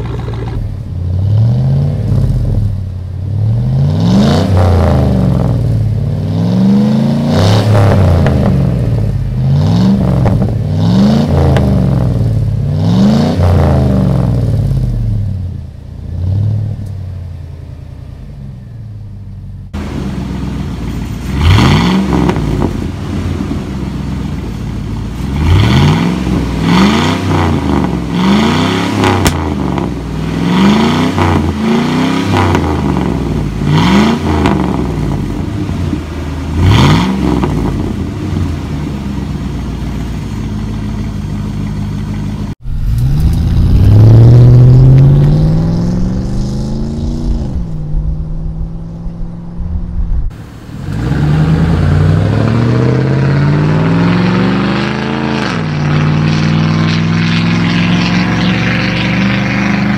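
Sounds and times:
truck engine revving: 0:00.0 - 0:17.4, 0:19.0 - 0:39.5, 0:42.4 - 0:59.9
truck accelerating past: 0:42.6 - 0:59.9.

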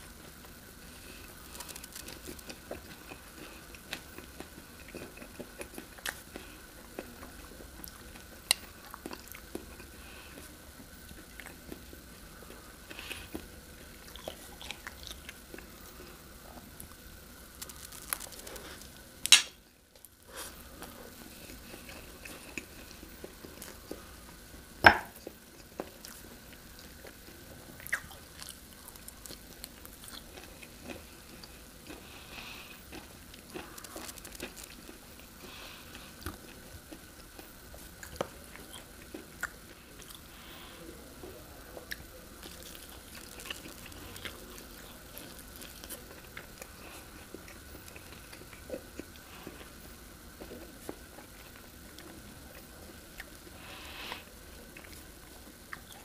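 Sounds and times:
chewing and mouth sounds: 0:00.2 - 0:19.4, 0:20.0 - 0:40.3, 0:41.2 - 0:56.0.

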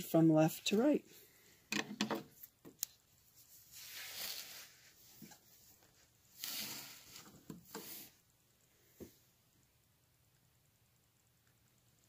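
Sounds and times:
soft rustles: 0:02.3 - 0:08.2.

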